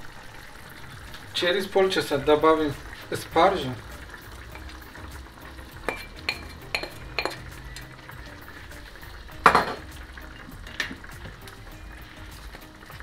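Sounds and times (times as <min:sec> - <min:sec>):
kitchenware clattering: 0:05.8 - 0:07.5, 0:09.4 - 0:09.9
utensil clinking on crockery: 0:05.9 - 0:07.5.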